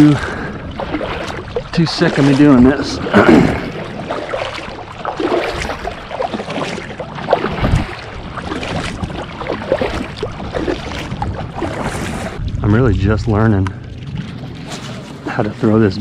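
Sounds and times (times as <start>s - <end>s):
kayak paddle splashing in water: 0.0s - 12.6s
water dripping off paddle: 0.0s - 12.6s.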